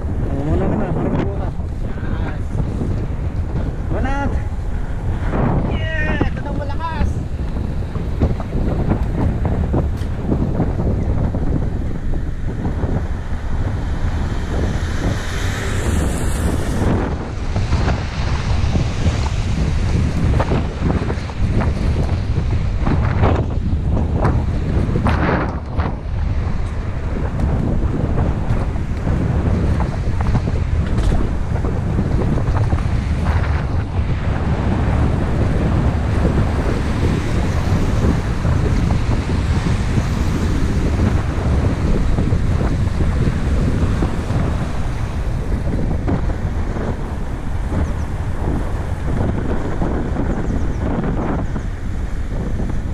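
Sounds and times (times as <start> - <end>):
wind buffeting microphone: 0.0 - 52.9
car passing on wet road: 11.4 - 23.1, 24.4 - 49.8
tyres hissing on wet road: 12.2 - 21.1.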